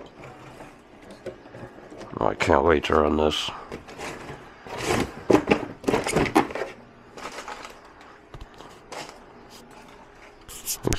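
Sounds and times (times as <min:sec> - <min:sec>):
cardboard boxes scraping and rustling: 0:03.8 - 0:07.7.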